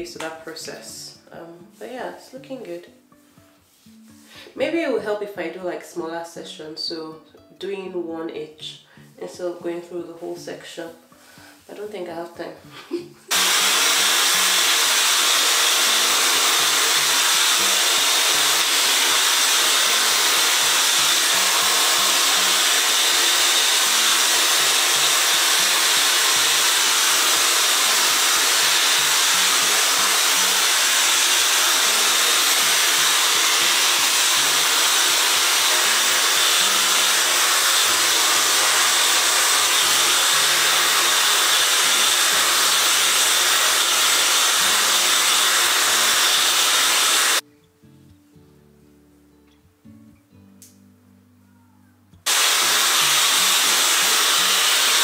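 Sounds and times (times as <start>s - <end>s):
hair dryer blowing air: 13.3s - 47.4s, 52.3s - 55.0s.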